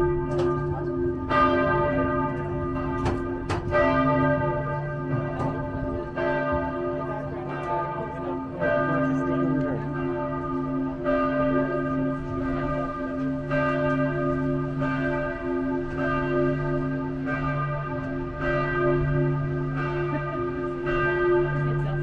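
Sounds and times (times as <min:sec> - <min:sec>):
church bells ringing: 0:00.0 - 0:22.0.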